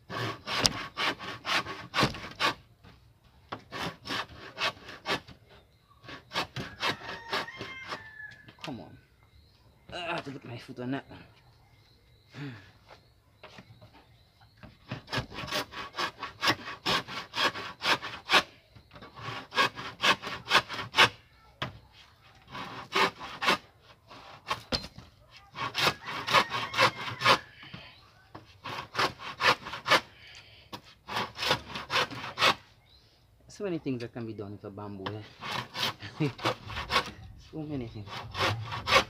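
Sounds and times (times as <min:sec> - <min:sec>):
hand saw cutting bamboo: 0:00.0 - 0:02.6, 0:03.6 - 0:05.3, 0:06.0 - 0:08.0, 0:14.9 - 0:18.5, 0:19.1 - 0:21.2, 0:22.5 - 0:24.7, 0:25.5 - 0:27.5, 0:28.6 - 0:30.1, 0:31.0 - 0:32.6, 0:35.2 - 0:37.2, 0:37.8 - 0:39.0.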